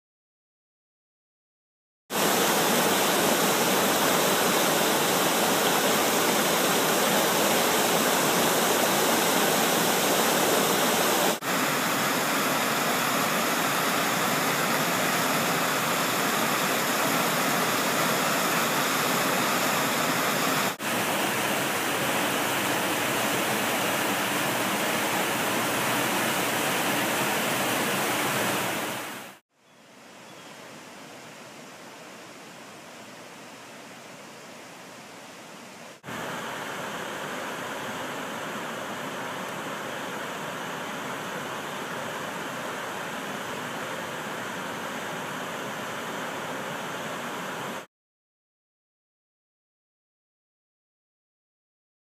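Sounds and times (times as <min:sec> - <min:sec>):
waterfall rushing: 0:02.2 - 0:29.4, 0:36.0 - 0:47.9.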